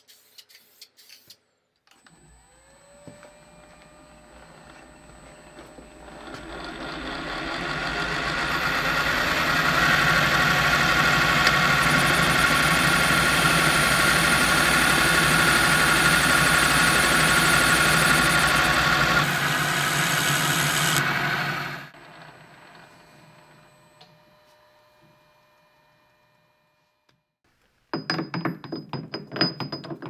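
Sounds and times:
whine of cutting tool: 1.9s - 27.2s
metal lathe running: 2.4s - 23.8s.

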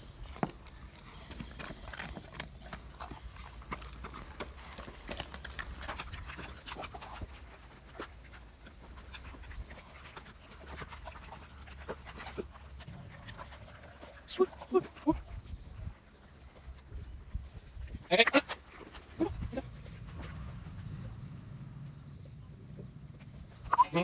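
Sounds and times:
dog chewing wetly: 0.0s - 16.9s.

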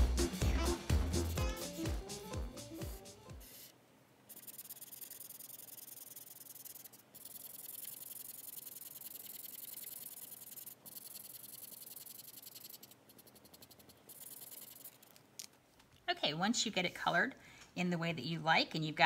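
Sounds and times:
marker scratching on paper: 4.3s - 15.2s.

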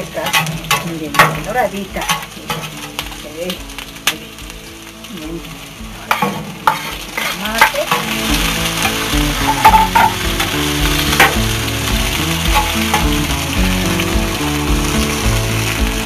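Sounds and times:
fork scraping a pan: 0.0s - 3.2s, 6.1s - 11.4s
food sizzling in hot oil: 0.0s - 16.0s.

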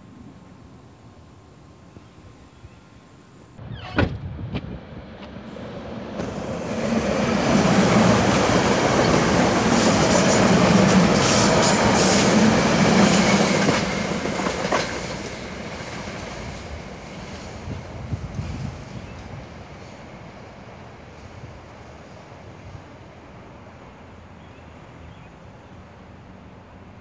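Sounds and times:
train rail rumble: 3.6s - 24.2s.

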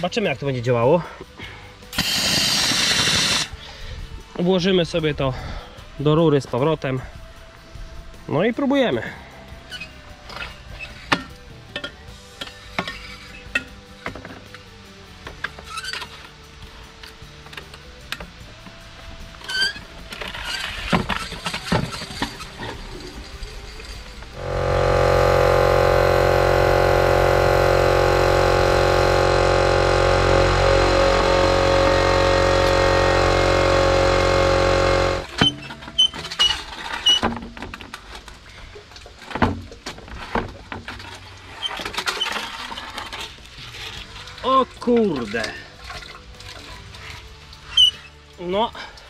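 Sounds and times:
air compressor motor humming: 2.0s - 3.5s, 24.3s - 35.3s.

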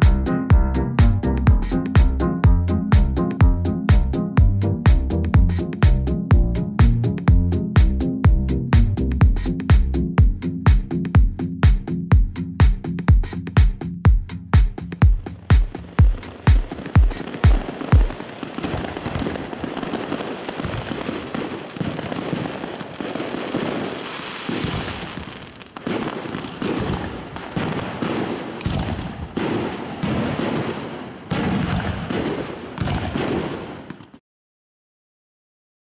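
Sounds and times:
fireworks crackling and banging: 15.1s - 34.2s.

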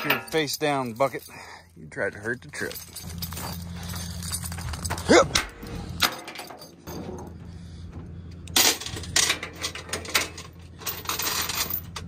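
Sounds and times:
steel chains clanking: 0.0s - 7.5s, 8.5s - 12.0s.

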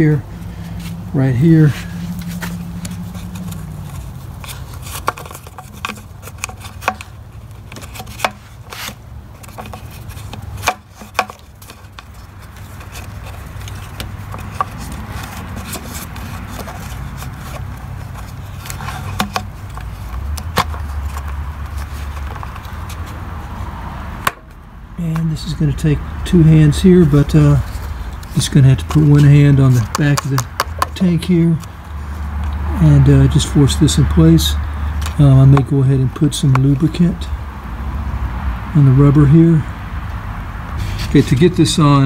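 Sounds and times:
rubber and plastic clicks and taps: 2.3s - 23.2s, 28.1s - 31.0s, 35.0s - 35.7s.

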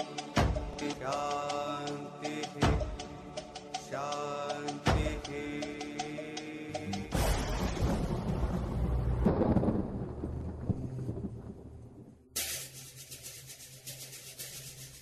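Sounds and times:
rumbling crash: 7.1s - 12.2s.

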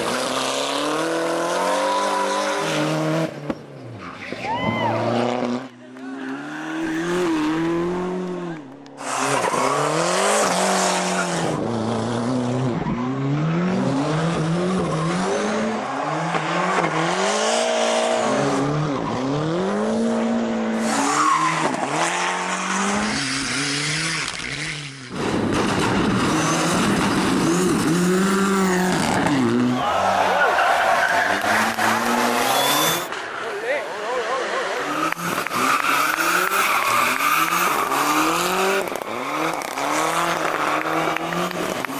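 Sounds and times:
rally car engine revving: 0.0s - 4.2s, 4.8s - 41.9s.

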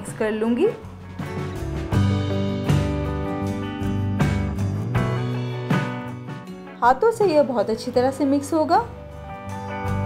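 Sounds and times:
plucked guitar chords: 1.3s - 6.8s.

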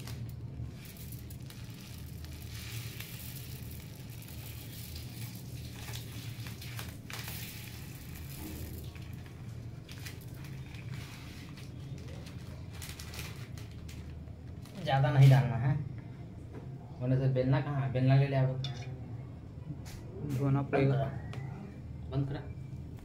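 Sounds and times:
spices clicking into steel tumbler: 0.0s - 5.9s
plastic packet crinkling: 0.0s - 14.9s
steady low hum: 0.0s - 23.0s.

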